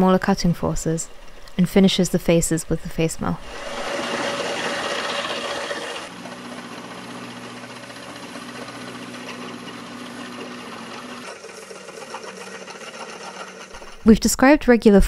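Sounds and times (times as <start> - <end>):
end mill cutting metal: 3.4 - 14.1
milling machine hum: 3.4 - 14.1.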